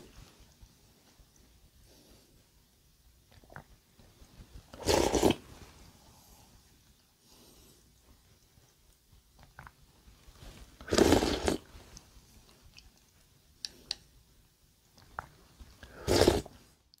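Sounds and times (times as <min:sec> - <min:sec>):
person slurping from a spoon: 0:04.7 - 0:05.5, 0:10.8 - 0:11.7, 0:15.2 - 0:16.6.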